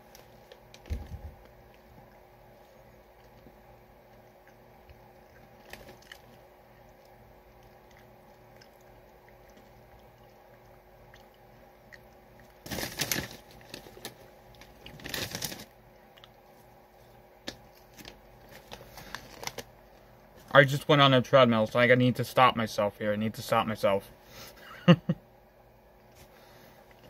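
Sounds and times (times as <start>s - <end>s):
crunchy chewing: 0.0s - 19.7s
popcorn bag rustling: 12.6s - 15.8s, 17.5s - 19.7s.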